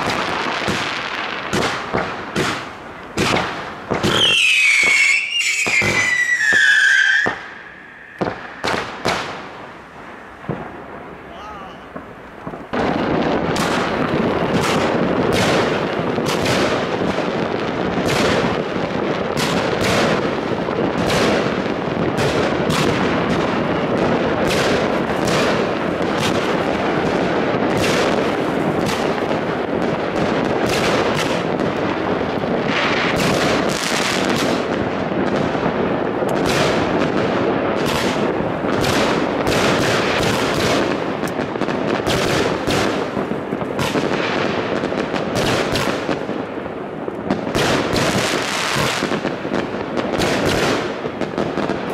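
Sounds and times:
fireworks exploding: 0.0 - 51.9.

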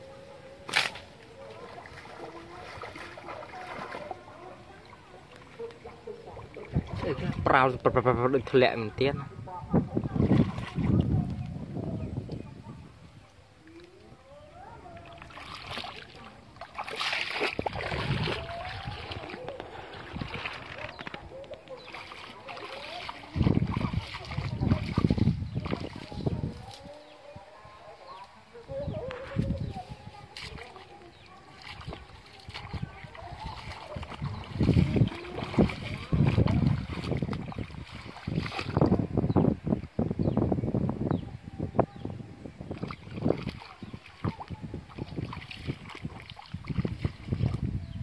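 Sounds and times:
footsteps splashing through water: 0.6 - 8.6, 10.0 - 11.6, 14.9 - 27.0, 29.1 - 39.2, 42.7 - 48.0.

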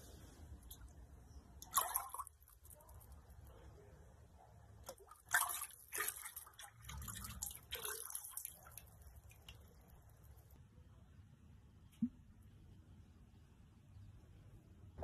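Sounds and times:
glaze sloshing in a bucket: 1.6 - 3.2, 4.8 - 9.8
glaze dripping into bucket: 1.6 - 3.4, 4.8 - 10.6.

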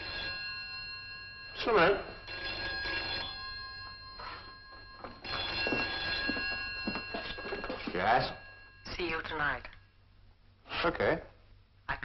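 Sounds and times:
telephone bell ringing: 0.0 - 9.7.

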